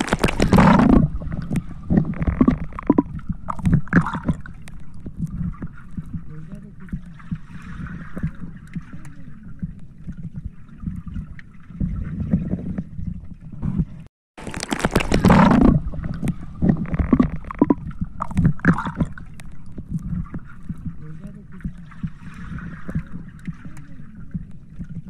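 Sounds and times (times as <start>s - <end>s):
water rushing and splashing: 0.0s - 12.7s
muffled underwater rumble: 0.0s - 25.0s
water gurgling: 0.0s - 25.0s.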